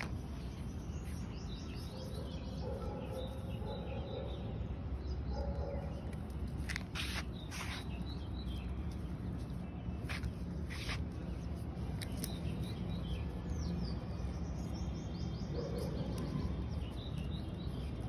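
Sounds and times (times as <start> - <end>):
birds chirping: 0.0 - 18.0
scraping or rustling: 6.4 - 8.0, 10.0 - 12.2.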